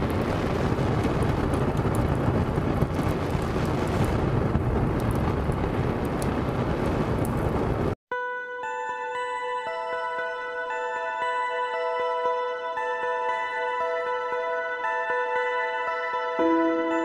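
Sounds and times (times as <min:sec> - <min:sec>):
faint crackles: 0:00.0 - 0:08.0
loud rumbling noise: 0:00.0 - 0:08.0.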